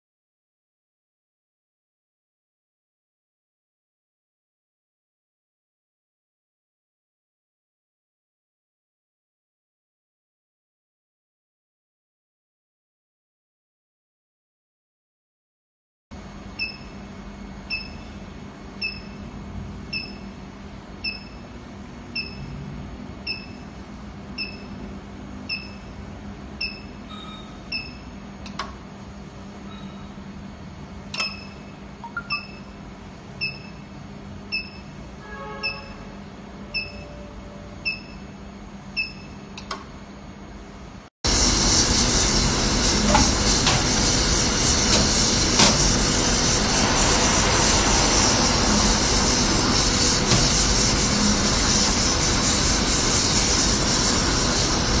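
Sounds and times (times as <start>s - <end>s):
short electronic beeps: 19.9s - 20.2s, 22.2s - 22.5s, 24.4s - 24.8s, 25.5s - 25.9s, 26.6s - 28.0s, 31.2s - 32.7s, 34.5s - 36.1s, 36.7s - 38.2s, 39.0s - 39.4s
gas torch flame hissing: 41.3s - 55.0s.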